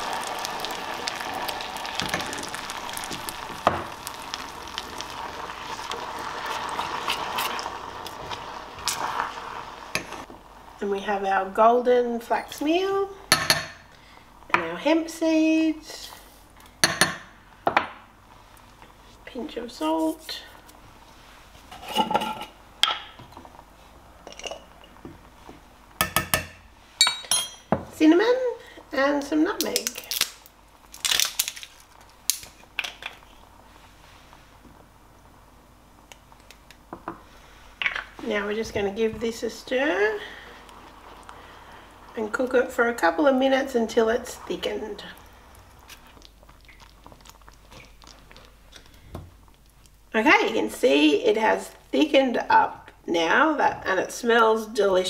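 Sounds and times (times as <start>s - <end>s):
coconut milk sizzling in a saucepan: 0.0s - 55.0s
metal spoon clinking on saucepan: 26.0s - 27.7s.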